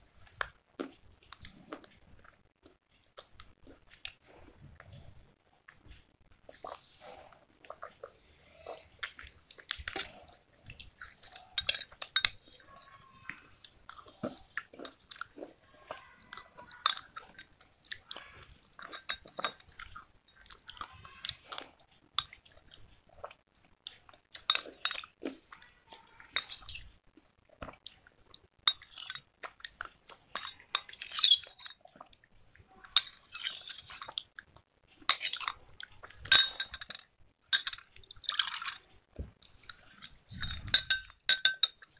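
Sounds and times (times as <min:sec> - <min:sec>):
chewing and sipping: 0:00.1 - 0:41.9
spoon clinking in a glass: 0:11.6 - 0:12.5, 0:18.8 - 0:19.6, 0:36.2 - 0:37.9, 0:40.4 - 0:41.8.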